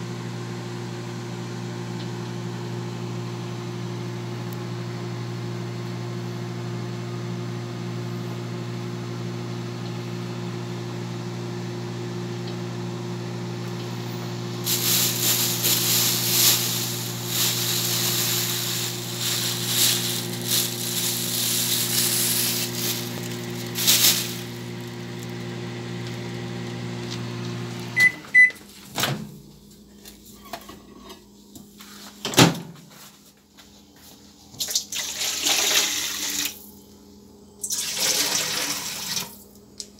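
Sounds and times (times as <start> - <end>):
microwave oven humming: 0.0 - 39.9
loud fluttering hiss: 14.6 - 24.6.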